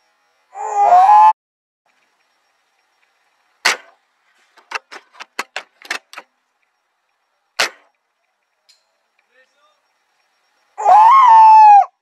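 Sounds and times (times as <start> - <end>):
airsoft gun shot: 3.6 - 4.0, 7.6 - 7.9.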